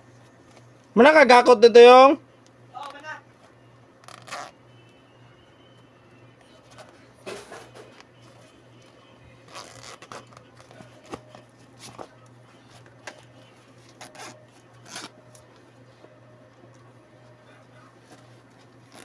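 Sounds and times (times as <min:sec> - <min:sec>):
zippers being pulled: 0:04.0 - 0:04.6, 0:09.5 - 0:10.4, 0:14.0 - 0:15.1
canvas rustling: 0:09.4 - 0:11.2.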